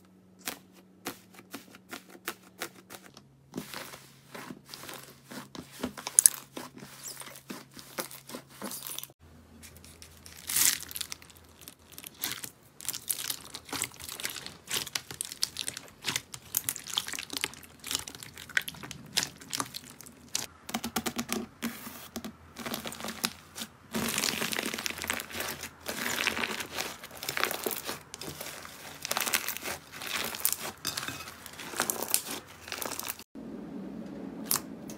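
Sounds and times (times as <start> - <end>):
slime crackling and squelching: 0.4 - 9.2, 9.8 - 20.5, 22.5 - 33.3
foam beads crunching: 10.0 - 20.5, 22.6 - 33.3.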